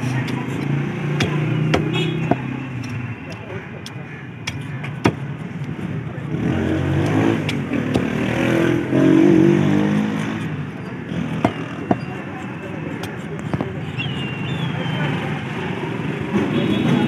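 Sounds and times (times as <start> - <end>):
knife chopping on wooden block: 0.1 - 5.4, 7.0 - 8.2.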